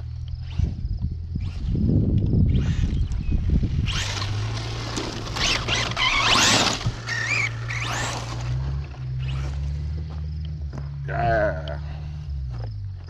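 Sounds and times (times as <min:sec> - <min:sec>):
toy truck electric motor whine: 0:00.3 - 0:09.6.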